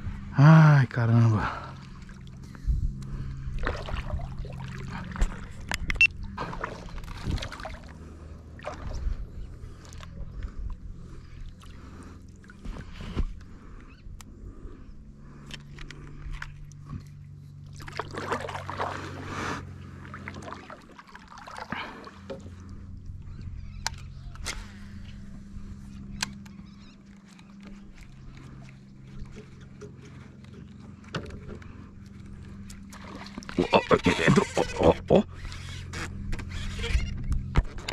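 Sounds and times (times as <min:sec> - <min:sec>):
low steady hum: 0:00.0 - 0:37.9
water lapping against kayak: 0:00.9 - 0:37.9
water splashing: 0:03.5 - 0:10.2, 0:17.6 - 0:22.6, 0:32.6 - 0:35.6.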